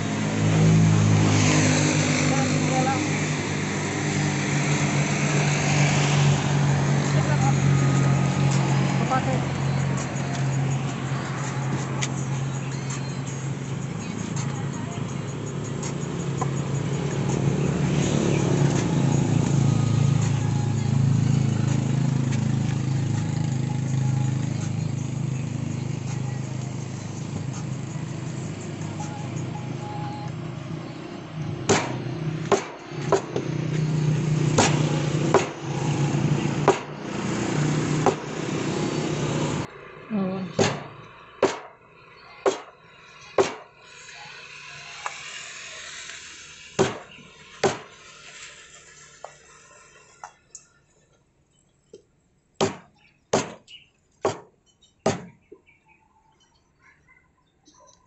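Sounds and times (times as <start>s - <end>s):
cleaver chopping on wooden block: 31.7s - 33.5s, 34.5s - 35.6s, 36.6s - 37.0s, 38.0s - 38.3s, 40.6s - 41.7s, 42.4s - 42.7s, 43.4s - 43.7s, 46.8s - 48.0s, 52.6s - 55.4s.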